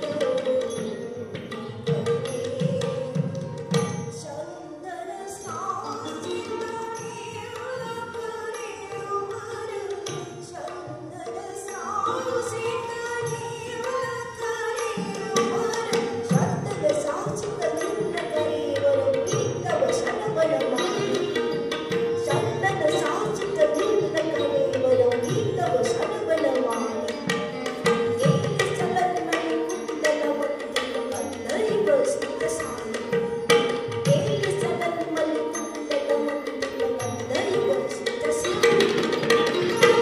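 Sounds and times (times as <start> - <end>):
sharp percussive strikes: 0.0 - 4.3, 5.4 - 40.0.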